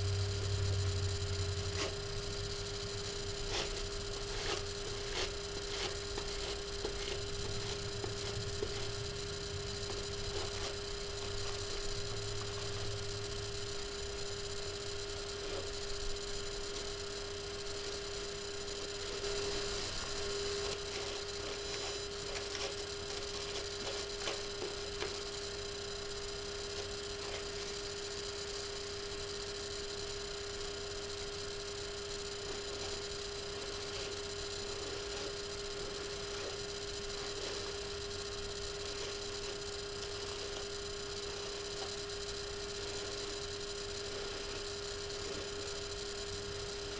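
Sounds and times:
electrical hum: 0:00.0 - 0:46.9.

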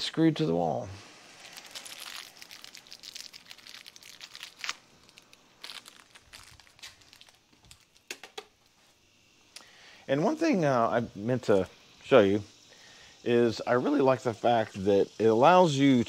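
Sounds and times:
crinkling and rustling: 0:01.4 - 0:08.9.

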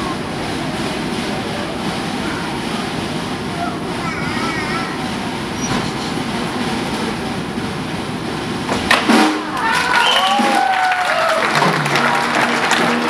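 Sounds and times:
steady rumbling din: 0:00.0 - 0:13.0
sliding whistle-like tones: 0:05.6 - 0:06.2, 0:09.9 - 0:10.5.

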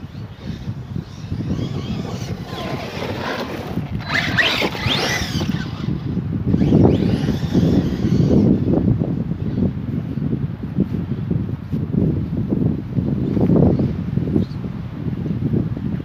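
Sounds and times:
toy truck electric motor whine: 0:00.0 - 0:08.8
wind rumbling on microphone: 0:00.0 - 0:16.0.

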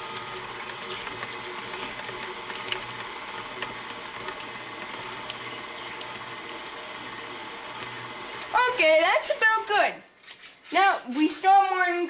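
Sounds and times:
electric mixer humming: 0:00.0 - 0:09.8
faint mixer clicks: 0:07.0 - 0:08.6.

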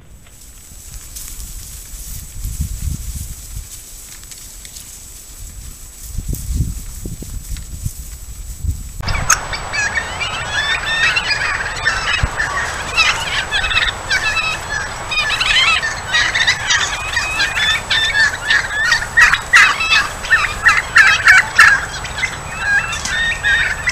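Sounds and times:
wild turkeys calling: 0:09.0 - 0:23.9.

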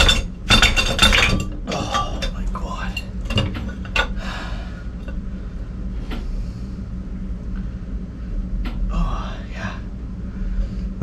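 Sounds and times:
metal knocks and clinks: 0:00.0 - 0:04.2
steady low hum: 0:00.0 - 0:11.0.

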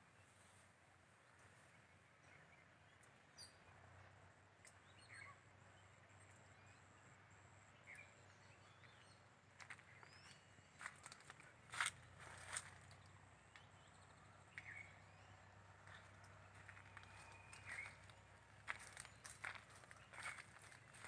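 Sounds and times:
faint bird chirps: 0:04.6 - 0:21.0.

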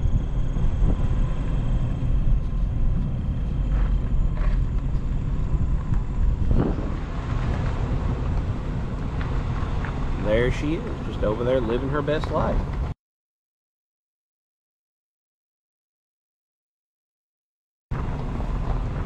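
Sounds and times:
vehicle engine and tyres rumbling: 0:00.0 - 0:13.0, 0:17.9 - 0:19.0.

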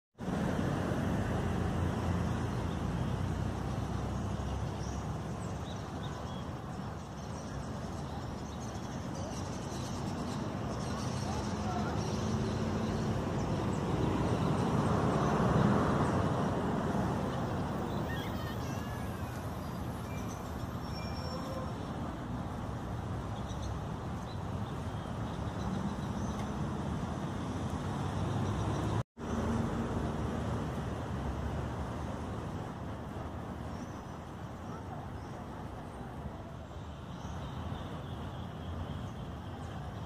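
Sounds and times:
road traffic noise: 0:00.2 - 0:40.0
vehicle passing: 0:10.0 - 0:20.4.

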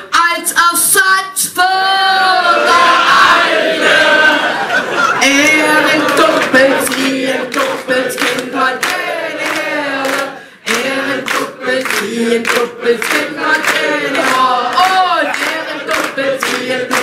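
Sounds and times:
group singing: 0:01.7 - 0:17.0
rhythmic hand-clapping: 0:05.2 - 0:17.0.

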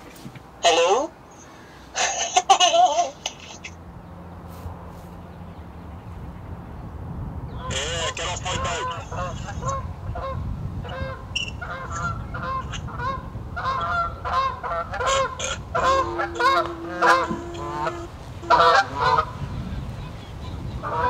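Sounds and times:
geese honking: 0:07.6 - 0:21.0.

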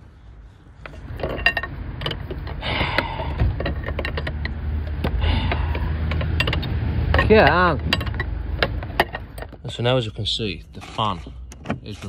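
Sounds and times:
metal clicking and rattling: 0:00.8 - 0:09.8.

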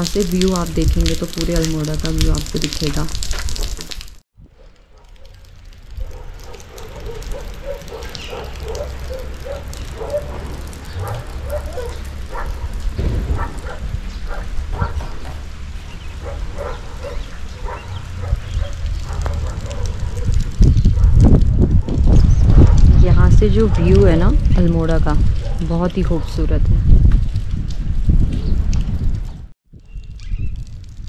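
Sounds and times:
animal yapping: 0:06.0 - 0:12.7
low rumble: 0:09.8 - 0:17.0.

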